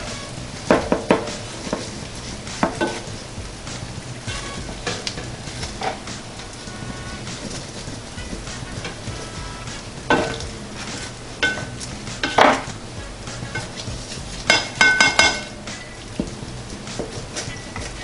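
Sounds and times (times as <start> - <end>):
spatula scraping baking pan: 0.0 - 18.0.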